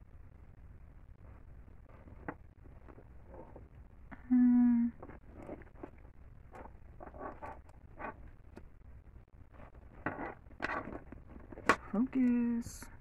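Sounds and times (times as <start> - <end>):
woman humming: 4.1 - 5.0.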